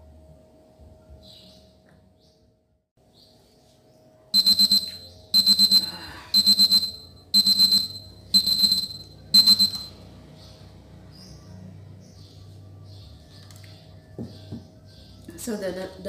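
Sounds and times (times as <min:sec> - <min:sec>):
kitchen timer beeping: 0:04.4 - 0:10.0.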